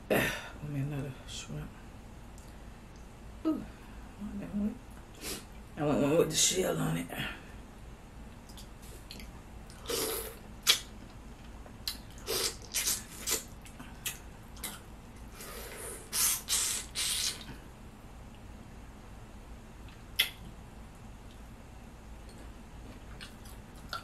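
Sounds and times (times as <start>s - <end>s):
wet slurping and sucking: 9.1s - 10.8s, 12.2s - 13.5s, 15.4s - 17.5s.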